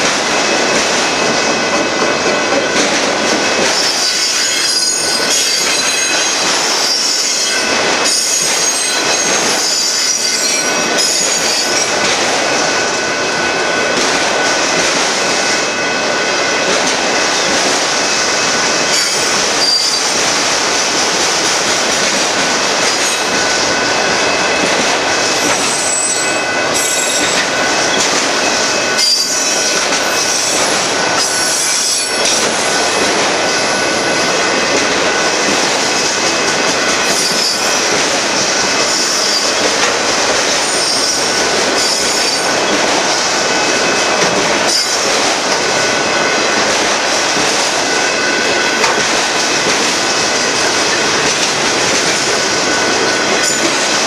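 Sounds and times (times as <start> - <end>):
train wheels rumbling on rails: 0.0 - 54.0
high-pitched wheel squeal: 3.8 - 11.9, 18.9 - 20.1, 25.4 - 27.4, 28.8 - 30.6.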